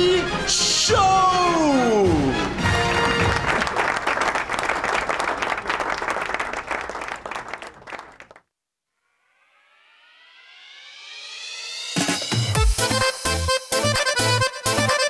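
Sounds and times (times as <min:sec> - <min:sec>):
applause: 0:02.3 - 0:08.5
rising synth sweep: 0:09.0 - 0:12.6.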